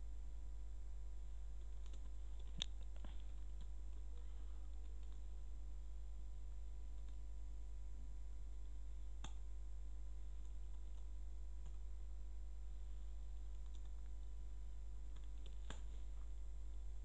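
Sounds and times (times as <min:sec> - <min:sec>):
low electrical hum: 0:00.0 - 0:17.0
computer keyboard clicks: 0:01.8 - 0:03.7, 0:13.5 - 0:14.0.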